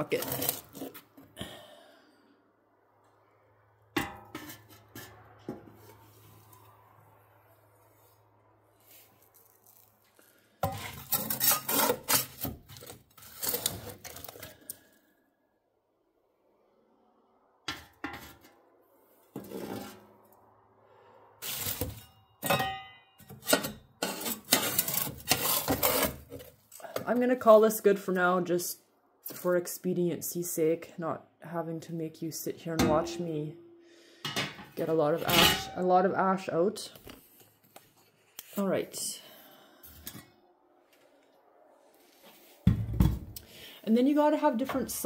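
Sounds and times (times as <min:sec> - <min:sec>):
metal shovel scraping and clanking: 0:04.0 - 0:06.5, 0:10.6 - 0:14.6, 0:17.7 - 0:18.6, 0:19.2 - 0:20.1, 0:21.4 - 0:27.4, 0:32.8 - 0:36.0
shovel clanking on metal bucket: 0:34.3 - 0:35.8.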